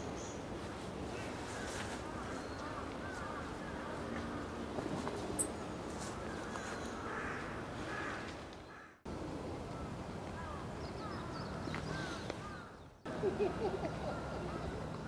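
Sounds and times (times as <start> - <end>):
bird calls: 10.4 - 15.0.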